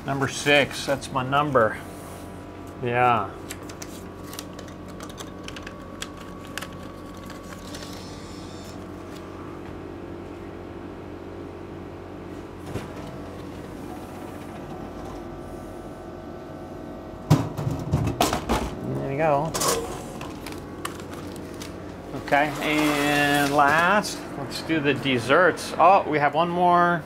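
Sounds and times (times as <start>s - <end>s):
vending machine humming: 0.0s - 27.0s
banknote reader whir: 3.4s - 9.5s.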